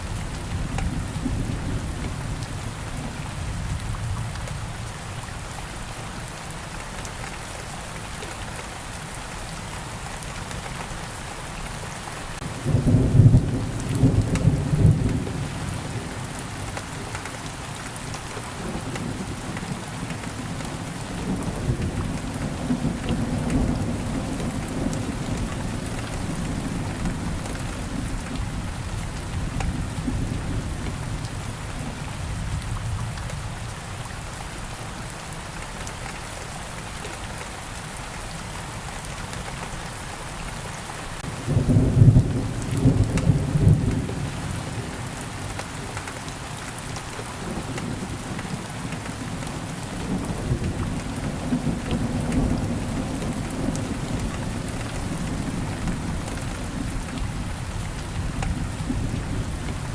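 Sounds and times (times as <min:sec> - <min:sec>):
steady rain falling: 0:00.0 - 0:59.9
low rolling thunder: 0:41.2 - 0:45.0, 0:50.0 - 0:59.9.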